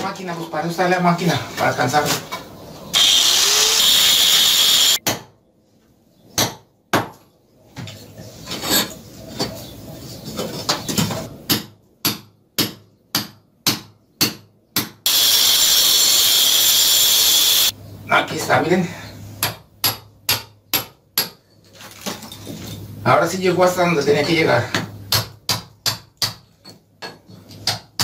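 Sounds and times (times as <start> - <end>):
angle grinder cutting brick: 2.9 - 5.0, 15.1 - 17.7.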